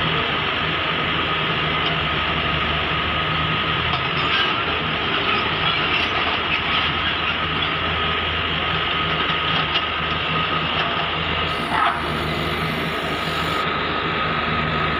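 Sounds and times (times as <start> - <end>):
diesel engine under load: 7.8 - 14.9
high-pitched whine: 11.5 - 13.8.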